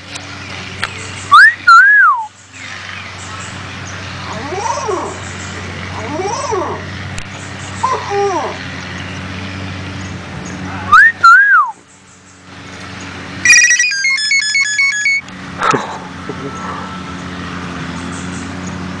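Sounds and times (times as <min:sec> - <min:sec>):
bird mimicking electronic beeps: 0:01.3 - 0:02.3, 0:13.4 - 0:15.3
bird whistling: 0:01.3 - 0:02.4, 0:10.9 - 0:11.8.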